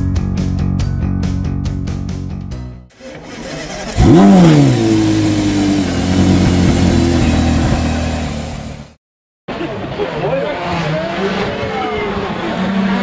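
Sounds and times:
car engine starting and idling: 0:02.9 - 0:09.0.

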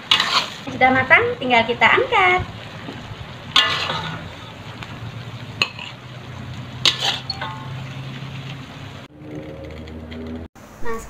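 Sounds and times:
metal spatula scraping wok: 0:00.0 - 0:00.9, 0:03.4 - 0:09.6
food sizzling: 0:00.0 - 0:09.6.

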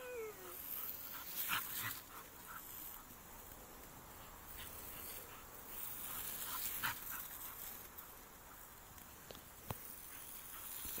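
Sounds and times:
dog whimpering: 0:00.0 - 0:00.6
garden hose spray hissing: 0:00.0 - 0:11.0.

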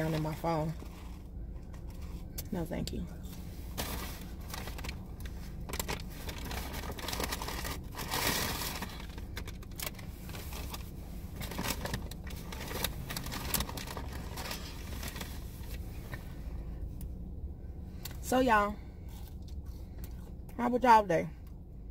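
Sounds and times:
low steady hum: 0:00.0 - 0:21.9
paper packaging crinkling: 0:03.8 - 0:15.8.

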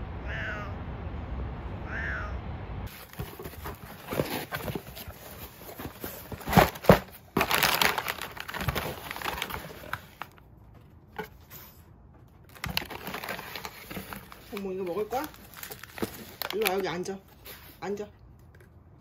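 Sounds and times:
plastic wrappers crinkling: 0:02.9 - 0:10.4, 0:12.5 - 0:17.9.

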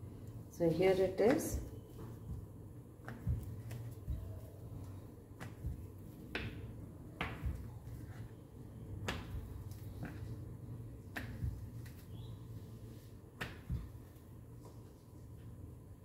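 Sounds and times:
low steady hum: 0:00.0 - 0:16.0
rolling pin rolling dough: 0:01.0 - 0:15.6
rolling pin knocking on board: 0:05.4 - 0:07.7.

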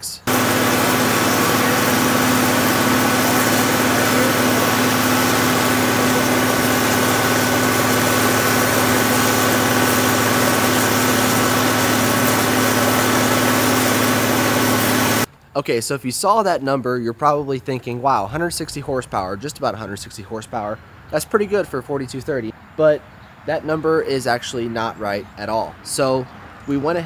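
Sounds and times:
tractor diesel engine under load: 0:00.1 - 0:15.3.

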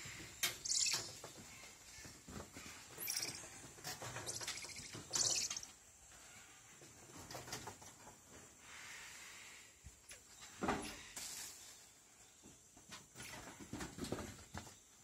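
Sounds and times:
monkeys chirping: 0:00.5 - 0:01.3, 0:02.9 - 0:05.8.

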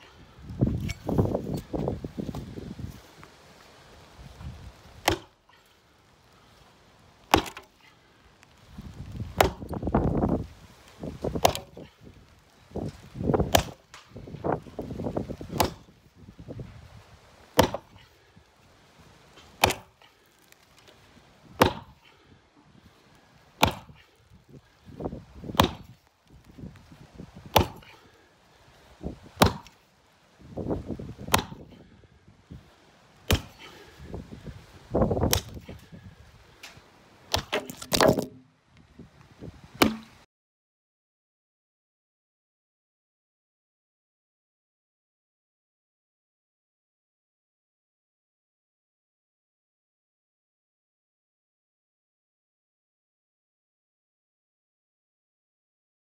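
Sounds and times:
axe chopping wood: 0:05.0 - 0:05.4, 0:07.3 - 0:07.7, 0:09.3 - 0:10.0, 0:11.2 - 0:11.9, 0:13.4 - 0:14.6, 0:15.4 - 0:15.9, 0:17.6 - 0:18.0, 0:19.4 - 0:20.1, 0:21.5 - 0:22.0, 0:23.6 - 0:24.1, 0:25.4 - 0:26.0, 0:27.4 - 0:28.0, 0:29.3 - 0:29.8, 0:31.2 - 0:31.7, 0:33.3 - 0:33.8, 0:35.2 - 0:35.8, 0:37.3 - 0:38.4, 0:39.8 - 0:40.2.

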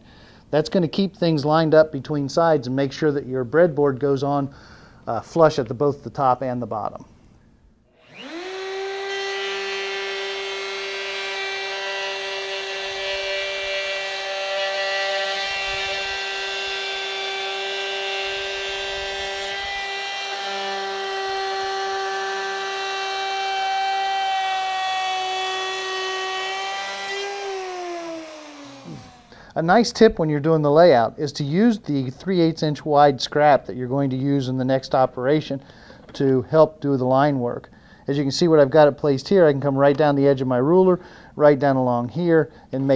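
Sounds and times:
electric router whining: 0:08.0 - 0:29.4.

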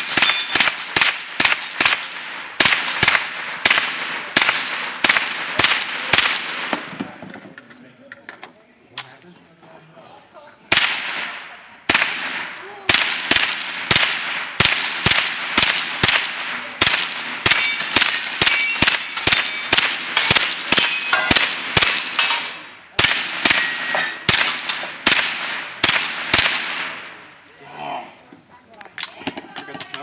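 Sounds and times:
steel targets clanging: 0:00.0 - 0:00.6, 0:17.4 - 0:25.0
rifle shots: 0:00.0 - 0:07.0, 0:10.7 - 0:27.2.

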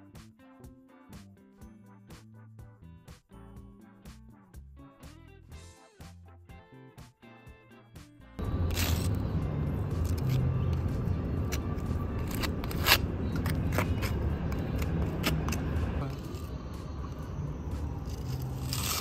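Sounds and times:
steady low rumble: 0:08.4 - 0:19.0
spatula scraping concrete: 0:08.6 - 0:16.6, 0:18.0 - 0:19.0.

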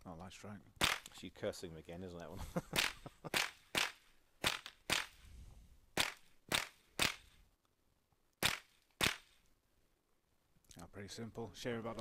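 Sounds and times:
rifle shots: 0:00.8 - 0:01.1, 0:02.8 - 0:05.2, 0:06.0 - 0:07.4, 0:08.4 - 0:09.4.

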